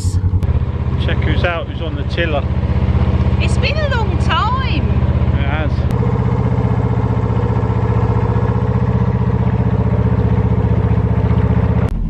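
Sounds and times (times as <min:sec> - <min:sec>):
boat engine puttering: 0:00.0 - 0:12.0.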